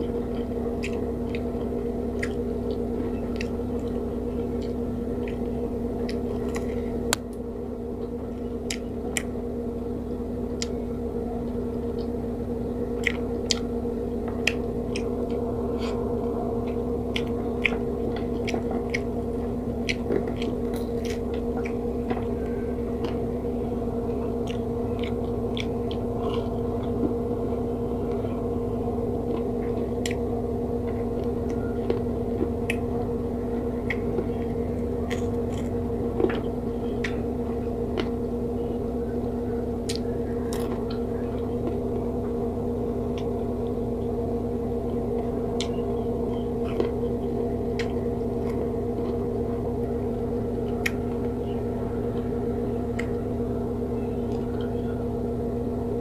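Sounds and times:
chewing: 0:00.0 - 0:55.0
low hum: 0:00.0 - 0:56.0.

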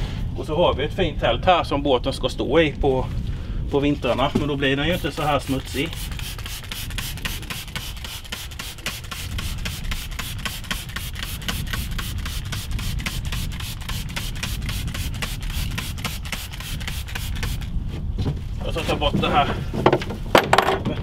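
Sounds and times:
spray bottle spraying: 0:04.9 - 0:17.8.

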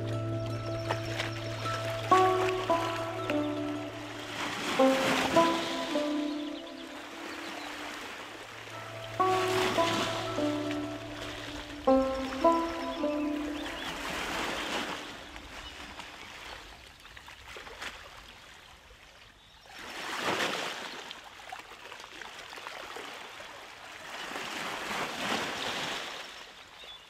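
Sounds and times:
sea waves washing in: 0:00.0 - 0:16.5.

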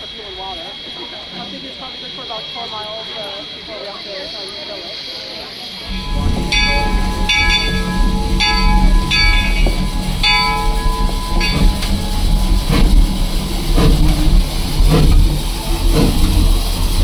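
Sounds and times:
steam engine puffs: 0:00.0 - 0:17.0
locomotive bell ringing: 0:05.8 - 0:15.7
low rumble: 0:05.9 - 0:16.6.

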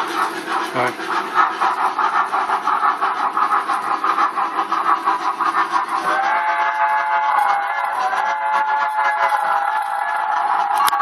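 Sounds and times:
model locomotive chuffing: 0:00.0 - 0:11.0
multi-note steam whistle: 0:06.0 - 0:11.0.

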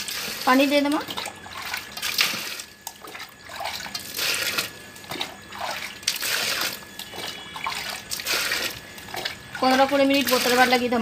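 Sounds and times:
water pouring into a metal bowl: 0:00.0 - 0:11.0.

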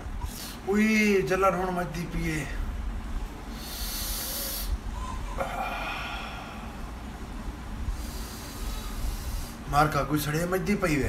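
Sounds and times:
man hissing through teeth: 0:03.5 - 0:04.8
man breathy exhale: 0:03.5 - 0:07.0, 0:07.9 - 0:09.7.

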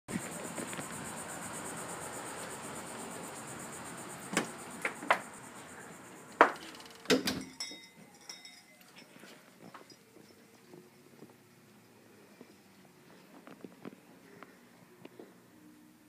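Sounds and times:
room hiss: 0:00.1 - 0:07.6
faint high buzzing whine: 0:00.1 - 0:16.0.

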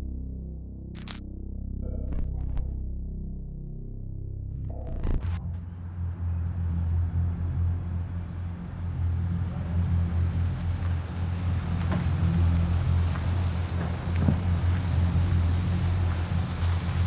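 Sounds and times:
car engine rumbling: 0:04.7 - 0:17.0
tyres clicking on cobblestones: 0:08.6 - 0:17.0.

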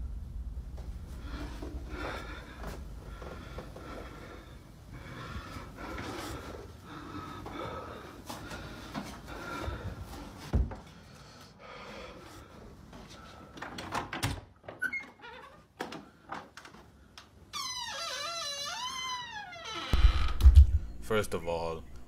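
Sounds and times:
footsteps: 0:00.7 - 0:04.5.

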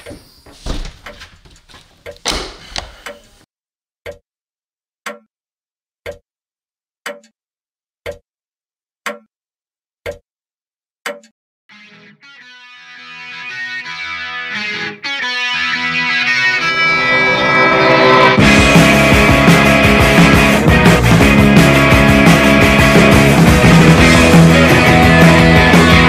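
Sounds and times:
clock ticking: 0:06.0 - 0:06.2, 0:07.1 - 0:07.4, 0:08.0 - 0:08.2, 0:09.1 - 0:09.3
electric guitar music: 0:11.7 - 0:26.0.

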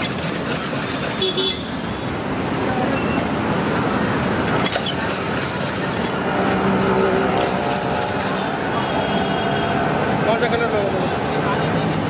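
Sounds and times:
ice-shaving machine rasping ice: 0:00.0 - 0:01.4
street traffic: 0:00.0 - 0:12.0.

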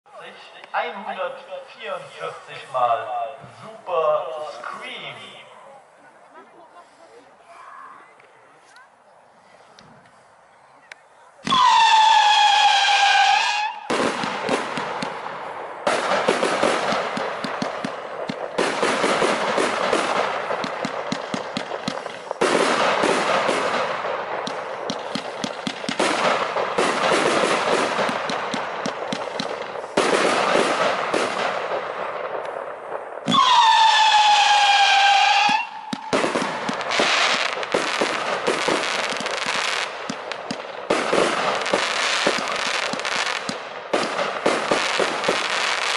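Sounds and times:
howling firework whistle: 0:11.4 - 0:14.0, 0:33.3 - 0:37.5
rapid firework crackling: 0:11.4 - 0:45.9.

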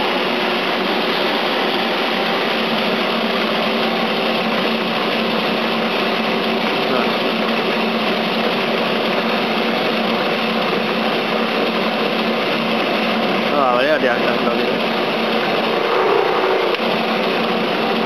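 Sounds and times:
dough sheeter motor humming: 0:00.0 - 0:18.0.

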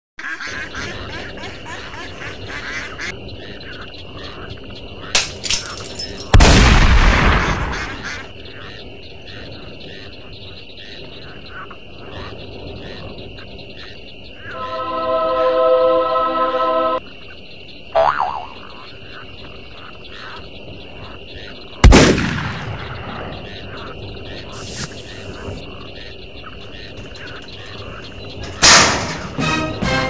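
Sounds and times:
frogs croaking: 0:00.2 - 0:28.7
insect drone: 0:00.2 - 0:29.0
shotgun blast: 0:06.3 - 0:08.0, 0:21.8 - 0:23.4.

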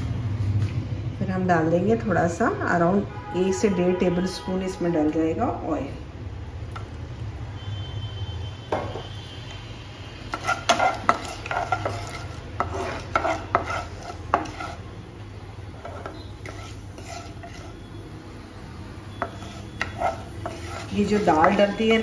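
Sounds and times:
spatula scraping and knocking pan: 0:10.3 - 0:15.0, 0:15.7 - 0:17.9, 0:19.1 - 0:22.0.

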